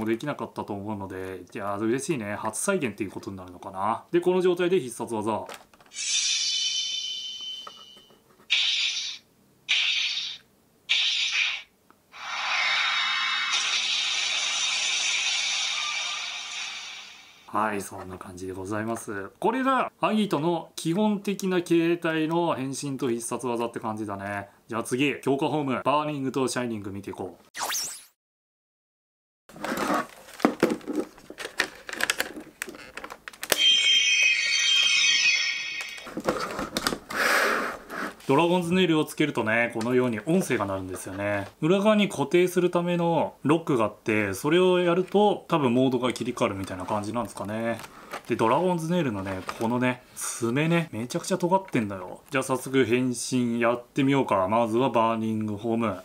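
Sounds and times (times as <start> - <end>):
toy speaker hissing bursts: 5.9 - 17.5
plastic clicking and clattering: 30.2 - 33.6
electronic ringing high tones: 33.6 - 36.1.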